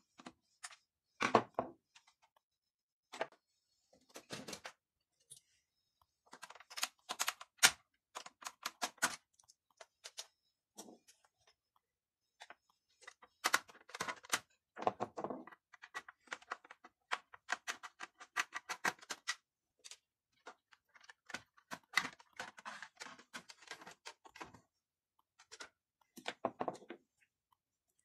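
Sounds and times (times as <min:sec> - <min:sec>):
plastic clicking and rattling: 0:06.3 - 0:10.4, 0:12.4 - 0:24.6.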